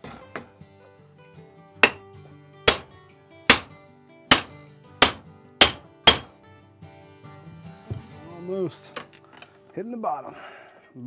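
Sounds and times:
background music: 0.0 - 11.0
hammer blows on wooden block: 1.8 - 2.0, 3.5 - 3.7, 4.3 - 6.3.

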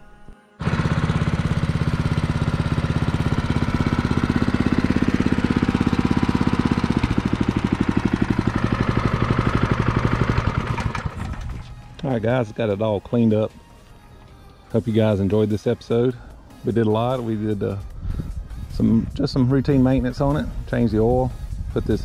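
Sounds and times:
lawn mower engine running: 0.6 - 12.8.

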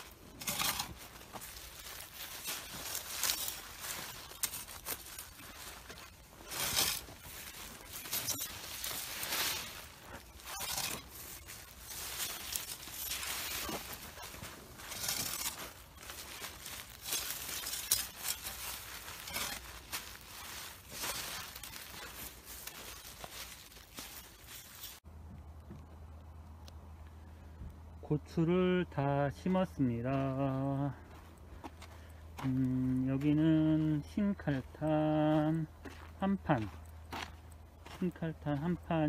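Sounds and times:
plastic mulch rustling and crinkling: 0.0 - 25.1.

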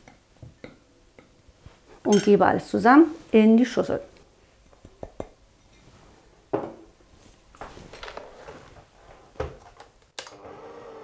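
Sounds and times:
glass bowls clinking: 2.1 - 2.4.

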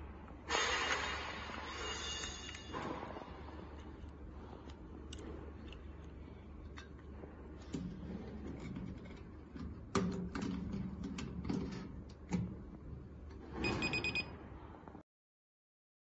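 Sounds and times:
short electronic beep: 13.6 - 14.3.

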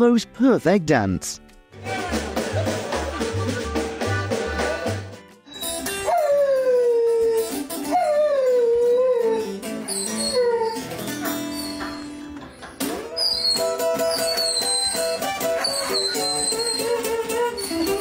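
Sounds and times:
guitar playing: 0.9 - 18.0
dog howling: 5.5 - 12.1, 13.1 - 18.0.

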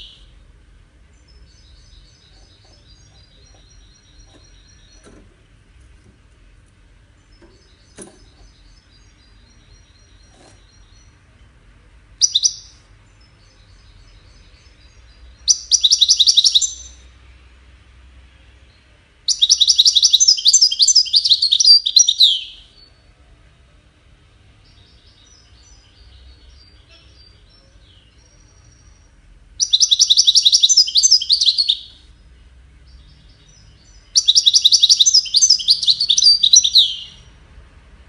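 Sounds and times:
soft bird twittering: 0.0 - 0.4, 1.1 - 5.4, 12.2 - 17.2, 18.8 - 23.0, 24.6 - 37.4
goldfinch singing: 1.2 - 5.2, 12.2 - 17.1, 19.3 - 22.9, 24.6 - 32.0, 32.9 - 37.3.

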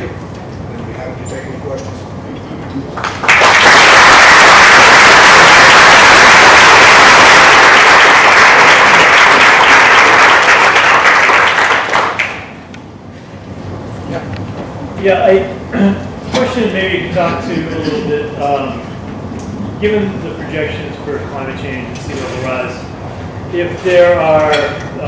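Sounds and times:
audience applauding: 3.0 - 12.5.

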